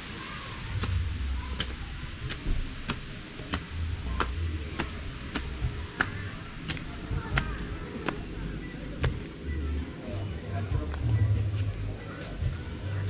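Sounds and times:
low rumble: 0.5s - 13.0s.

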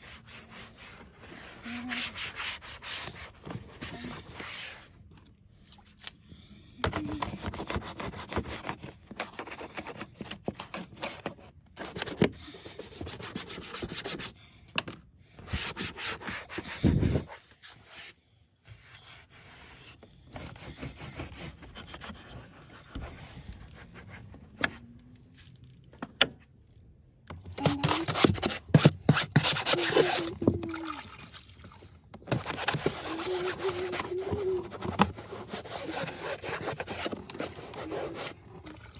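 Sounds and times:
cloth scrubbing plastic trim: 27.4s - 31.0s, 32.2s - 38.8s.

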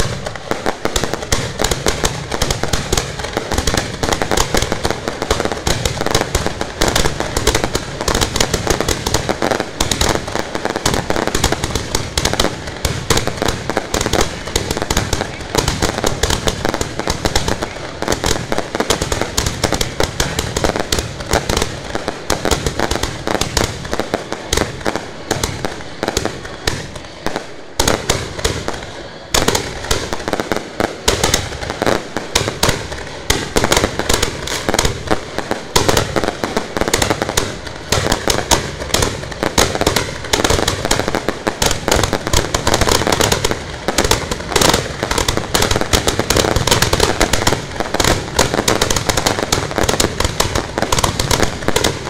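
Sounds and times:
fireworks bangs and crackling: 0.0s - 52.0s.

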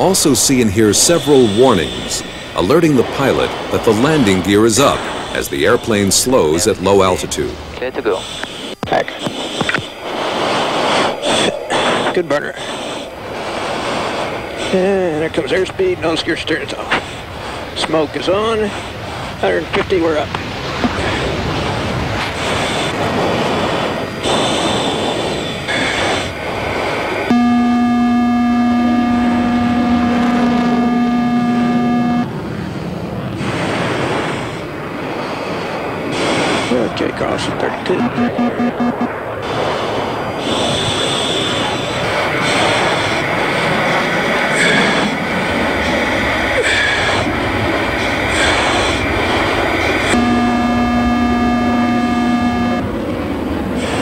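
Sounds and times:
electronic warning tone: 0.0s - 7.4s, 27.3s - 32.3s, 38.0s - 39.2s, 50.1s - 52.9s
jet engine rushing: 0.0s - 54.0s.

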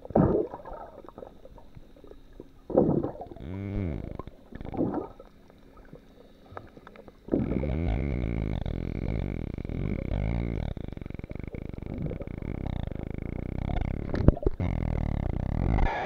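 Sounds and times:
water burst: 0.0s - 7.8s
low underwater rumble: 0.0s - 15.9s
underwater gurgling and sloshing: 0.0s - 16.0s.

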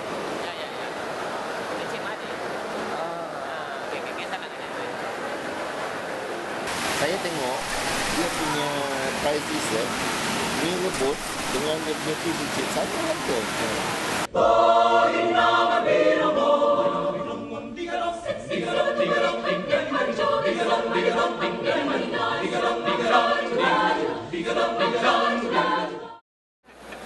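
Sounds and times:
choir singing: 14.2s - 26.2s.

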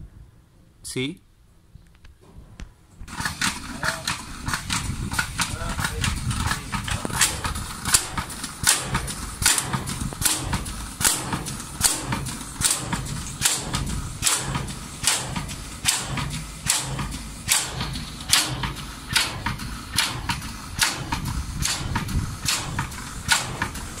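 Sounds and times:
pump clacking rhythmically: 3.1s - 24.0s.

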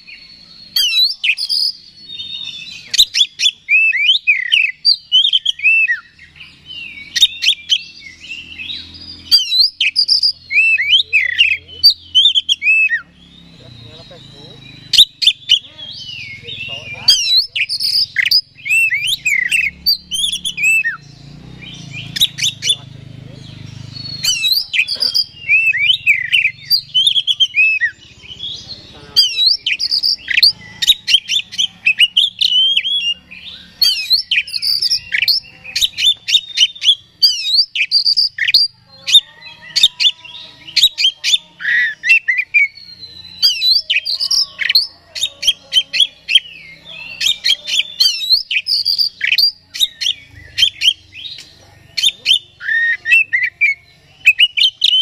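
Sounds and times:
bird singing chirps and whistles: 0.0s - 55.0s.

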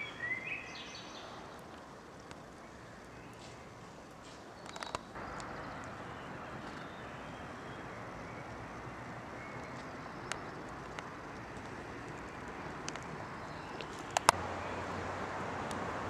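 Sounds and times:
outdoor background hiss: 0.0s - 16.0s
sharp clicks: 4.6s - 6.0s, 9.7s - 13.2s, 13.8s - 14.4s.

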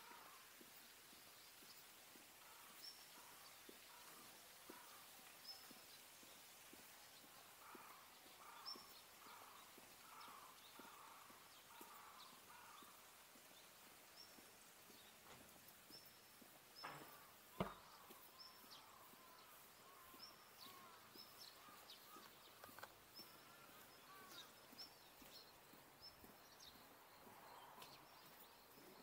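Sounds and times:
small birds chirping: 0.0s - 29.0s
sharp knock: 16.8s - 17.8s.

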